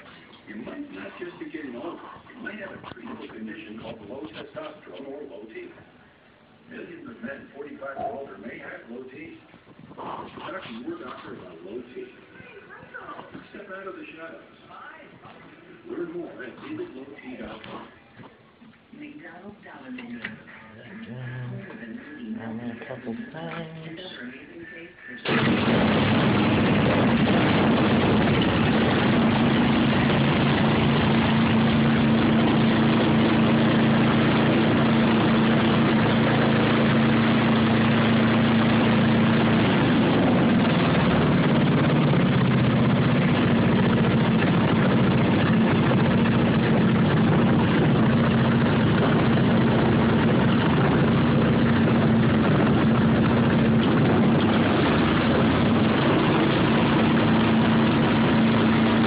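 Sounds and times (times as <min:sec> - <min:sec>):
snowblower engine running: 0:25.2 - 0:59.0.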